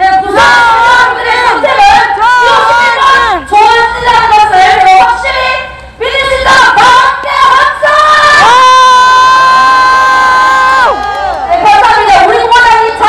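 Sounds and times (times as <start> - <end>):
woman singing loudly: 0.0 - 9.0.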